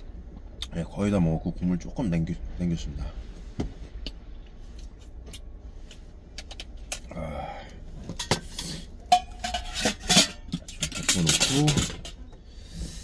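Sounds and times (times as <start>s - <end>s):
metal pot and utensils clinking: 8.1s - 12.2s.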